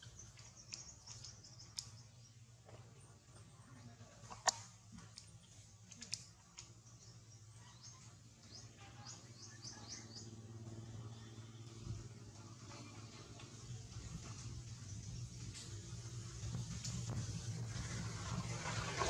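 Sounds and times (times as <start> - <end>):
bird chirping: 0.0 - 2.5, 6.0 - 11.8.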